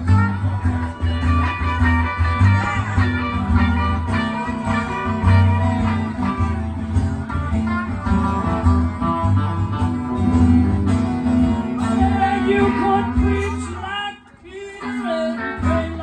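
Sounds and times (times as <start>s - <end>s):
harmonica playing: 0.0s - 9.8s
acoustic and electric guitars: 0.0s - 16.0s.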